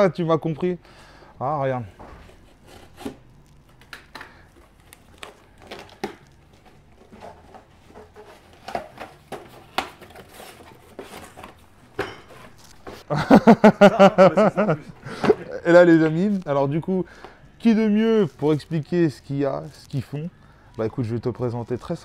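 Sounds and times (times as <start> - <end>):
man talking: 0.0 - 0.8, 1.4 - 2.0, 14.0 - 22.0.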